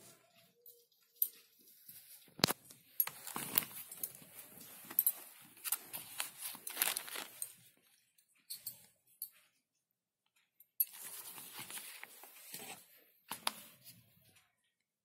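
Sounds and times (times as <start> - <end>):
packaging rustling: 2.0 - 7.7, 10.9 - 13.6.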